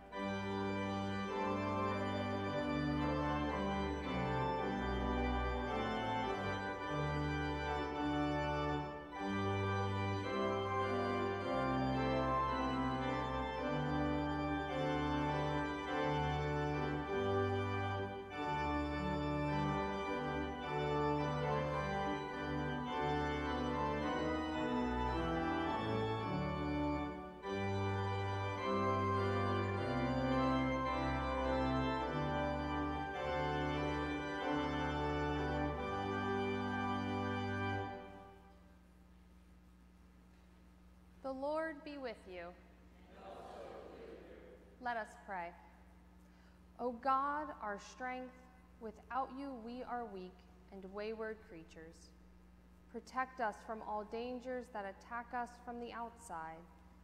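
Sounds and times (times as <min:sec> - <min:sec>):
church organ playing hymn: 0:00.0 - 0:38.6.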